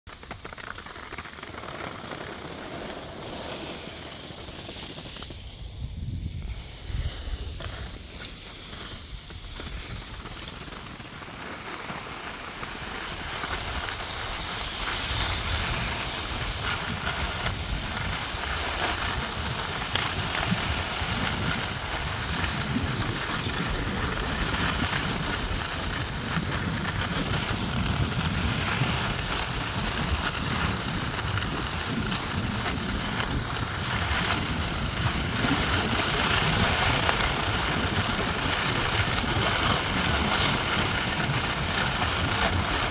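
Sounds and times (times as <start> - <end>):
skis scraping over snow: 0.1 - 42.9
wind on microphone: 2.4 - 42.9.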